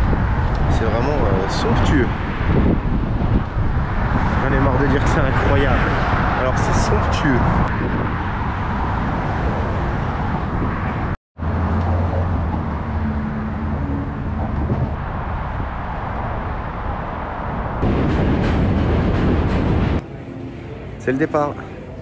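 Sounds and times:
street traffic: 0.0 - 22.0
low engine hum: 7.4 - 22.0.

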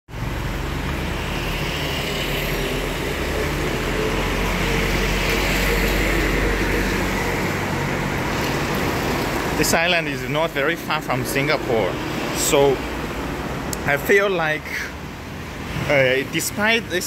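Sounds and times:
motor scooters passing: 0.2 - 9.6.

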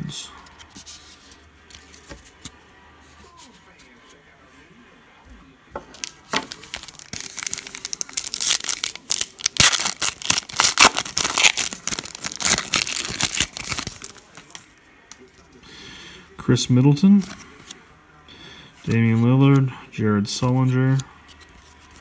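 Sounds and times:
foil wrapper tearing and crinkling: 6.0 - 14.6.

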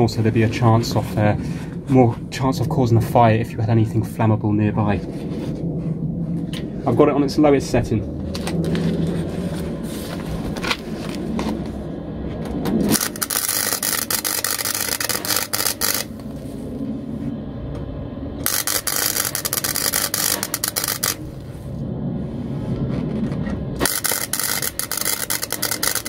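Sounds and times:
welding arc crackling and spitting: 12.9 - 16.4, 18.4 - 21.5, 23.8 - 26.0.

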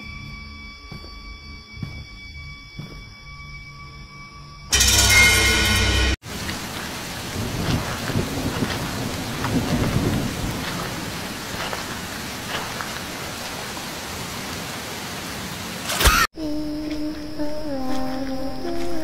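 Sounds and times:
rain hissing: 6.2 - 16.2.

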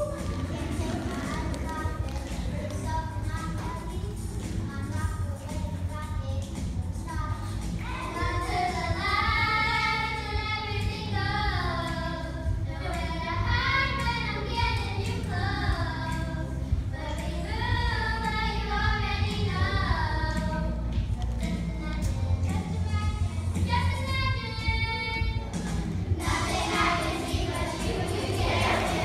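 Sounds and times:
children singing: 0.0 - 4.0, 7.8 - 20.5, 25.6 - 29.0
pop backing track over speakers: 0.0 - 29.0.

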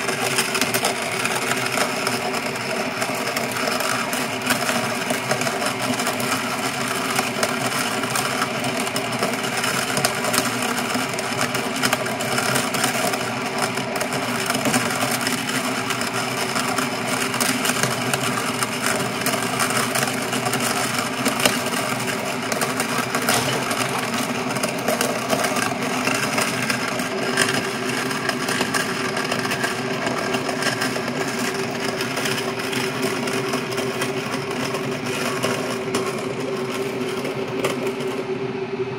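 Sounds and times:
motor and gear hum: 0.0 - 38.5.

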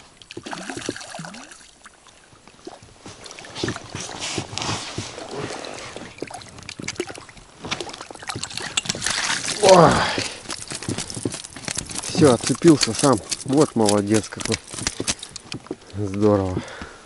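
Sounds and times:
water sloshing: 0.0 - 15.9
fish splashing at surface: 5.2 - 13.4.

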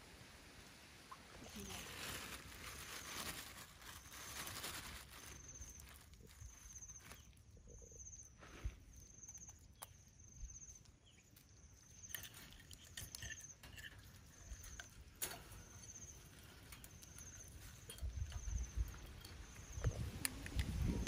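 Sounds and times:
faint high chirp: 2.8 - 12.6.

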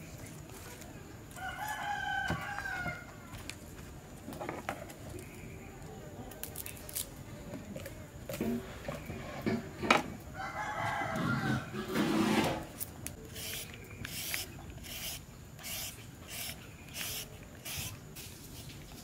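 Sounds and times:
rooster crowing: 1.4 - 3.2, 10.3 - 12.1
peeler rasping on carrot: 13.3 - 18.3.

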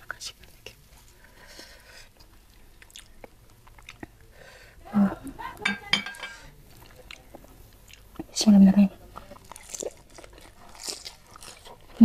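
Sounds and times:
glass clinking on ceramic: 5.6 - 6.4.

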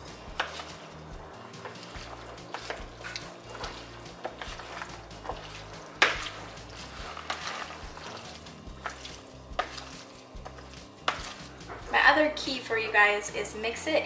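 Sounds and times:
wooden spoon scraping plastic bowl: 0.0 - 12.0.

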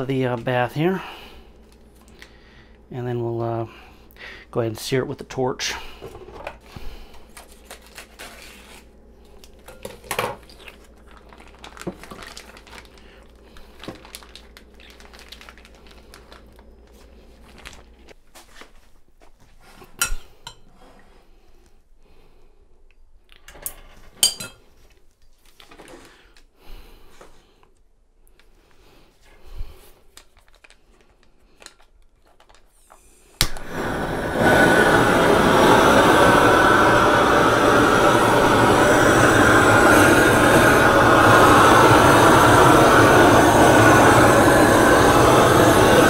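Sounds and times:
plastic bag crinkling: 7.2 - 9.6, 10.4 - 18.2, 30.0 - 32.9
metal tongs clinking on glass bowl: 24.2 - 24.6.

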